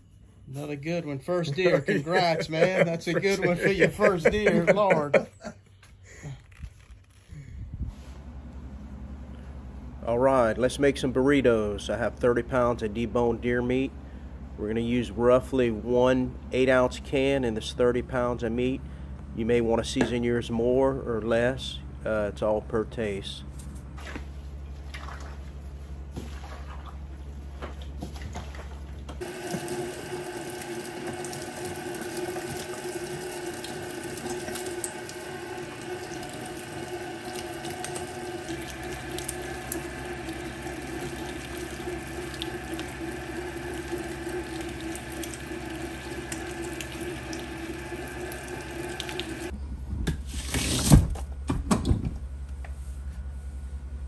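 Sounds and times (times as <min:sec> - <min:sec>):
electric meat grinder running: 0:29.2 - 0:49.5.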